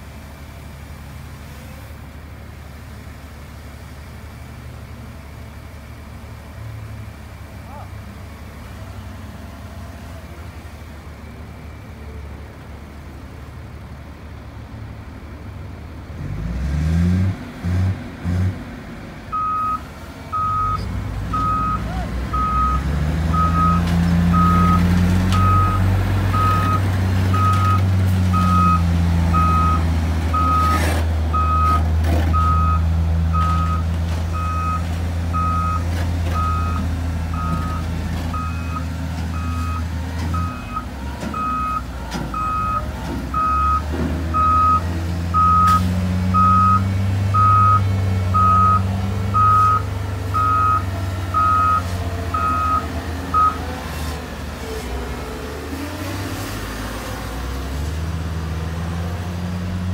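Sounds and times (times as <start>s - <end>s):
diesel engine running under load: 0.0s - 59.9s
reversing alarm beeping: 19.3s - 30.8s, 31.4s - 33.8s, 34.4s - 35.8s, 36.4s - 53.6s.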